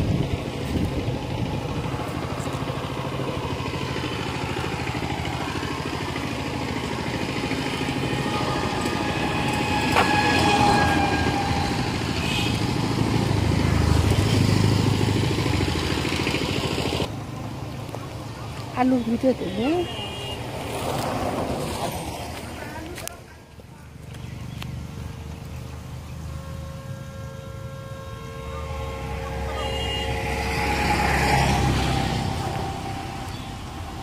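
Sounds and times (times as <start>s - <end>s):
small engine running: 0.0s - 17.1s.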